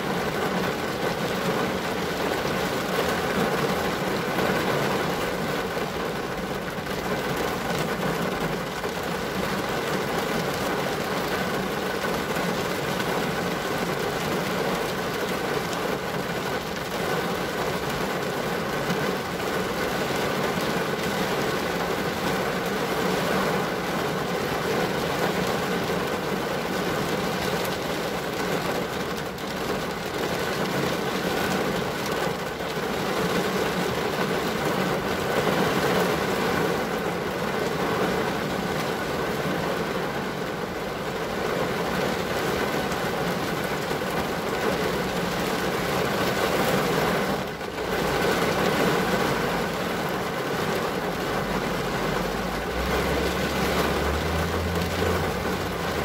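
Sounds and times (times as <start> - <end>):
rain on car glass: 0.0 - 56.0
vehicle engine drone: 51.2 - 56.0.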